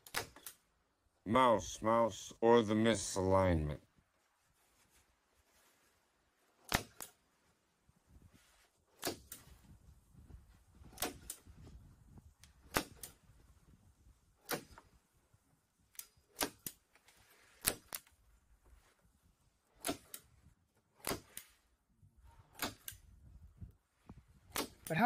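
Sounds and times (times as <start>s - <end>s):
staple gun snapping: 14.5s - 14.8s, 19.8s - 20.2s.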